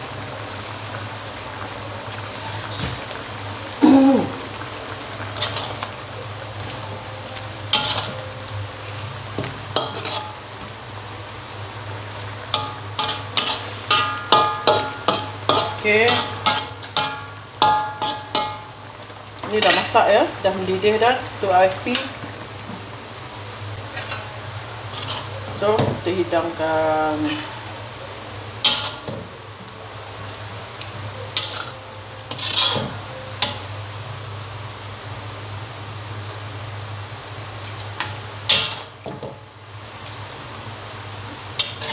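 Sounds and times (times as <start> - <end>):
low steady hum: 3.1 - 41.7
metal spatula scraping a wok: 5.4 - 5.8, 7.7 - 8.2, 9.8 - 10.4, 12.6 - 18.5, 23.9 - 25.8, 27.2 - 27.6, 28.6 - 29.1, 31.4 - 33.6, 41.6 - 41.9.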